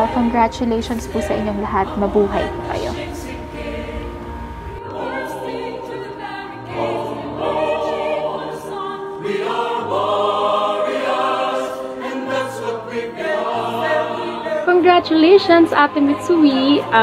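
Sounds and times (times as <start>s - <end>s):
choir singing sustained chords: 0.0s - 17.0s.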